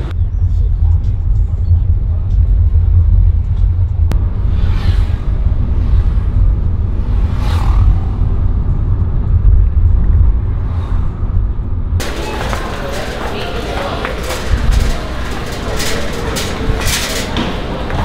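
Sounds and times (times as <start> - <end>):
passing traffic whooshes: 4.1 - 18.0.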